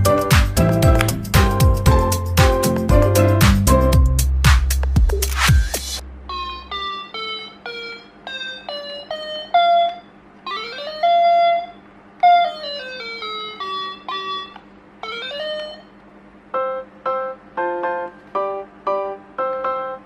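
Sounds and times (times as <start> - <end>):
toy keyboard electronic beeping notes: 6.3 - 16.0.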